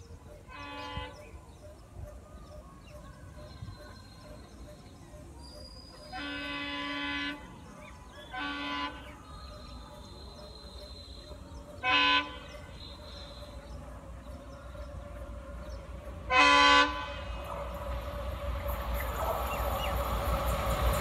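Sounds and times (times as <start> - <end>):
train air horn blasts: 0.5 - 1.3, 6.1 - 7.7, 8.3 - 9.2, 11.8 - 13.6, 16.3 - 17.5.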